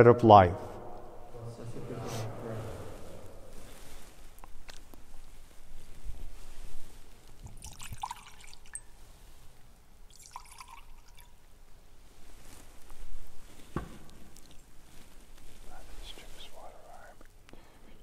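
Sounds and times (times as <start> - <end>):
wine pouring into metal chalice: 7.4 - 9.0, 10.1 - 11.4.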